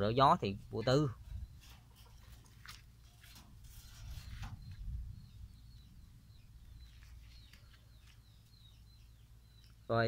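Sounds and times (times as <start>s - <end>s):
plant rustling on plastic tarp: 1.6s - 4.7s, 6.8s - 8.2s
faint small-bird chirps: 3.8s - 10.0s.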